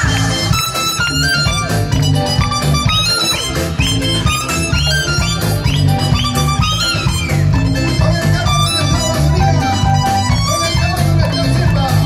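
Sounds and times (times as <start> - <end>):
live cumbia band through pa: 0.0 - 12.0.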